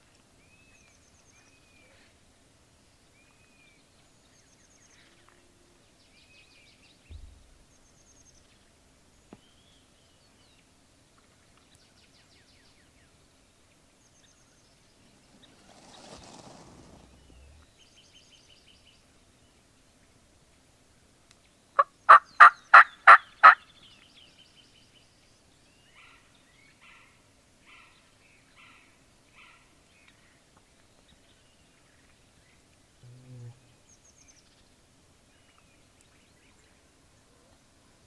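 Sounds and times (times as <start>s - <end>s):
low thump: 7.1s - 7.6s
soft rushing sound: 14.5s - 18.0s.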